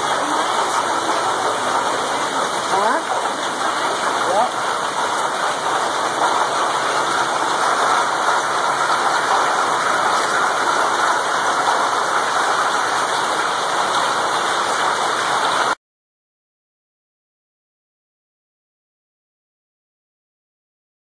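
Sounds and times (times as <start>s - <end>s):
heavy rain and hail on pavement: 0.0s - 15.8s.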